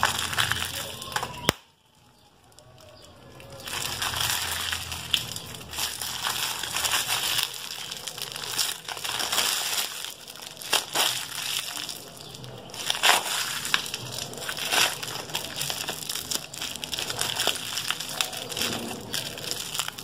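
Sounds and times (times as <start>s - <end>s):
crinkling plastic wrapper: 0.0s - 20.0s
slime squishing: 0.0s - 20.0s.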